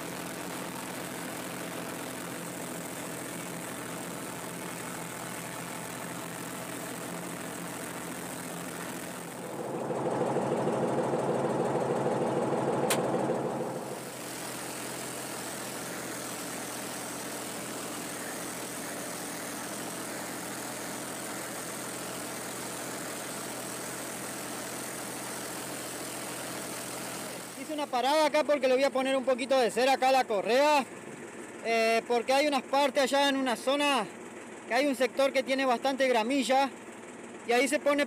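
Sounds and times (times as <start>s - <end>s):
tractor engine running: 0.0s - 28.2s
rotary mower running: 0.0s - 29.4s, 30.2s - 32.7s, 33.3s - 38.0s
sharp click: 12.8s - 13.1s.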